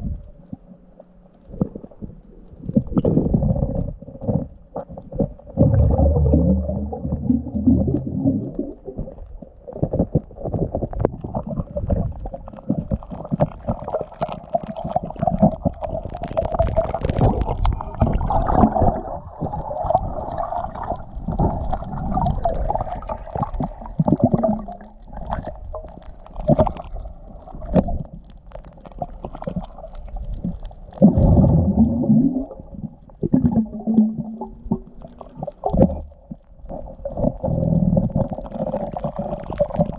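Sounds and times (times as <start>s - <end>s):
water gurgling underwater: 0.0s - 39.9s
underwater clicks and knocks: 1.4s - 20.0s, 23.3s - 39.9s
deep rumbles: 1.5s - 13.2s.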